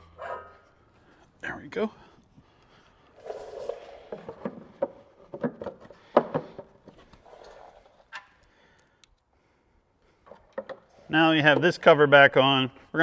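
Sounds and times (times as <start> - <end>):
knocks of parts being handled: 4.2 - 7.0.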